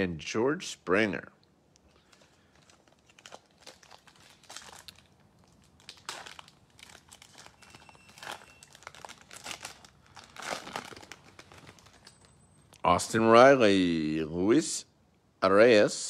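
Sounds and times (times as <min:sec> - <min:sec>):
card pack wrapper tearing: 0:02.0 - 0:12.2.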